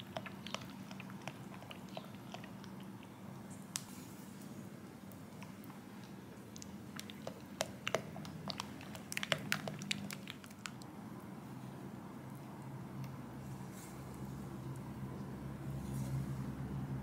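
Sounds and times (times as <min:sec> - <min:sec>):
spatula squelching in ganache: 0:05.3 - 0:10.8.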